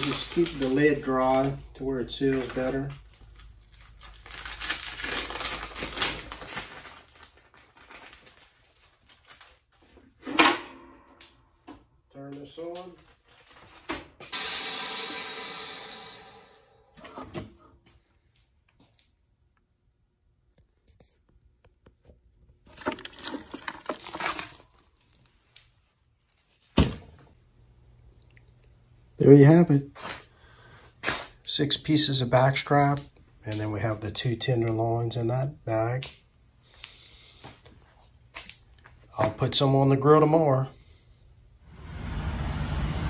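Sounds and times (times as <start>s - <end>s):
plastic bags rustling and crinkling: 0.0s - 10.2s, 12.3s - 14.3s, 22.7s - 26.8s.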